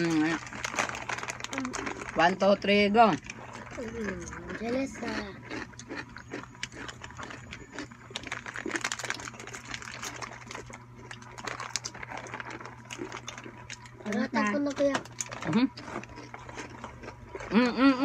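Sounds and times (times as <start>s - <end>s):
crunchy snack being eaten: 0.0s - 2.4s, 3.1s - 18.0s
steady low hum: 0.0s - 18.0s.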